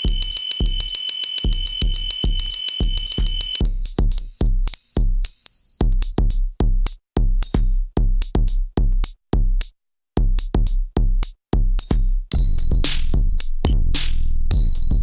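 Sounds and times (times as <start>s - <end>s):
high bell-like tone: 0.0s - 6.6s, 14.5s - 15.0s
drum machine kick drum beat: 0.0s - 15.0s.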